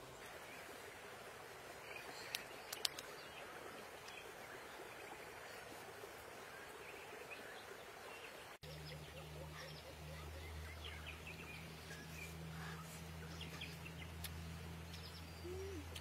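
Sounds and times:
sharp clicks: 2.3 - 3.1.

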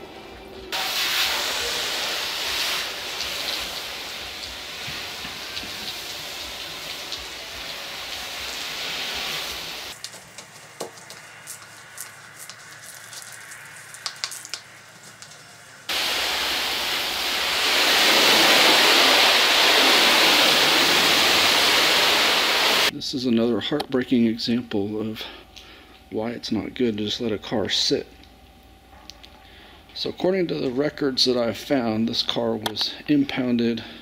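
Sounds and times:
hose nozzle spraying water: 0.7 - 22.9
clicks and taps: 14.0 - 15.4.

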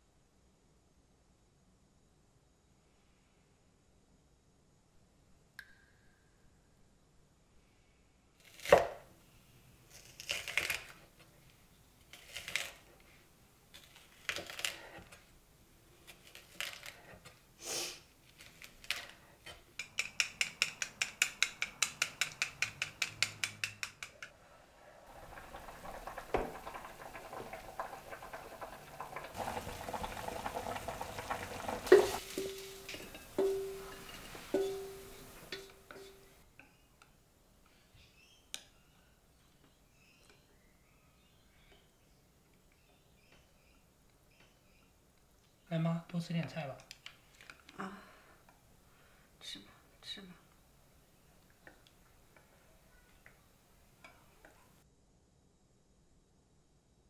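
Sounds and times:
kitchen knocks and clatters: 18.9 - 24.3, 25.1 - 36.4
chopsticks beating eggs in bowl: 19.7 - 24.3, 25.2 - 36.3
food sizzling on stove: 25.0 - 36.4.

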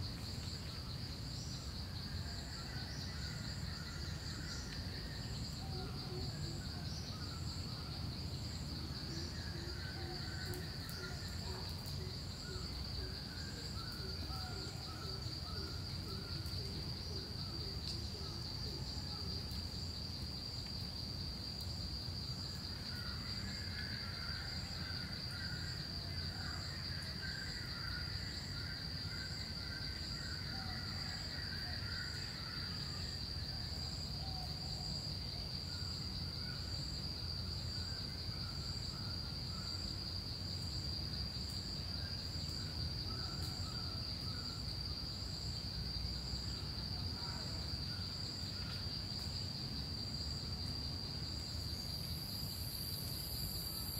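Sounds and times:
pulsing insect call: 0.0 - 21.0, 22.2 - 53.9
high-pitched insect trill: 0.0 - 53.9.

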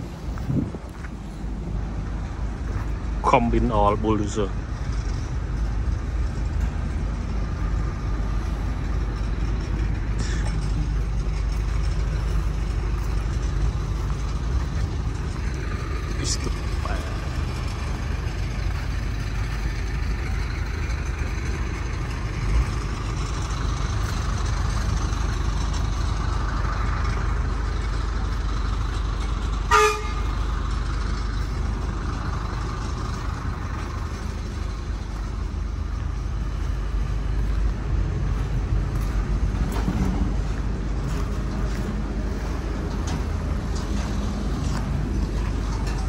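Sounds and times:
heavy vehicle engines rumbling: 0.0 - 46.0
short horn toot: 29.7 - 30.3.

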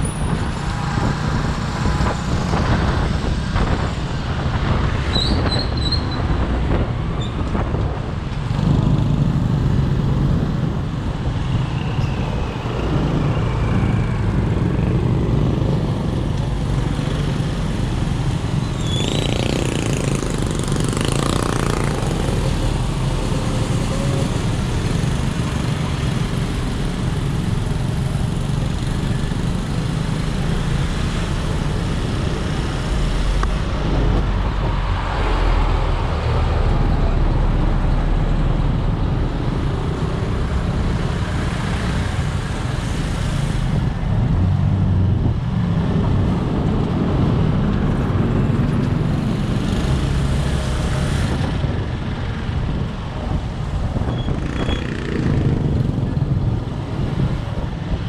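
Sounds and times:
traffic rumble: 0.0 - 58.0
motorcycle engine at low speed: 12.9 - 34.4, 38.6 - 58.0.

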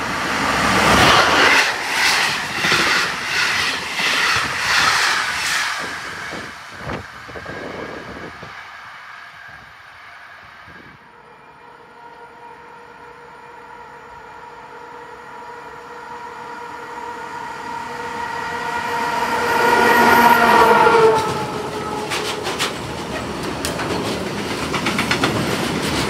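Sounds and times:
faint electric locomotive hum: 0.0 - 26.0
train wheels clattering over rail joints: 21.1 - 26.0.

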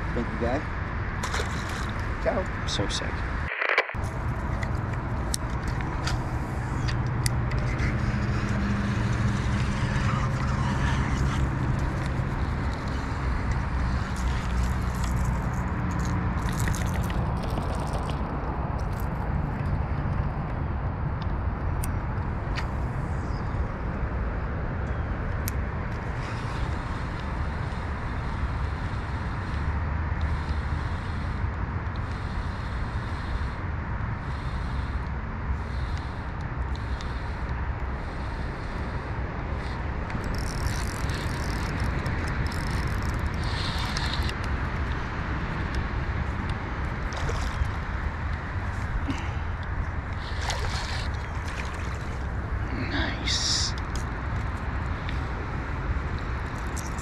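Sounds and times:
fish splashing: 1.2 - 2.2, 7.7 - 18.4, 46.9 - 49.4, 50.0 - 52.6
fishing reel clicking and whirring: 40.1 - 44.5.

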